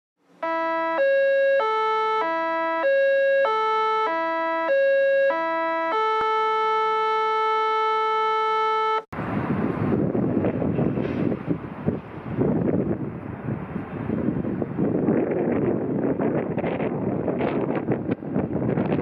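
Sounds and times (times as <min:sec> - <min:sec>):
wind noise on microphone: 0:09.2 - 0:19.0.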